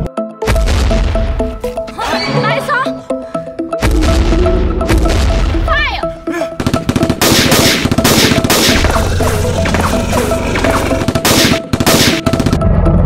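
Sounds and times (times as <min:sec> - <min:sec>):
background music: 0:00.0 - 0:13.0
rapid automatic gunfire: 0:06.6 - 0:09.0, 0:11.0 - 0:12.6.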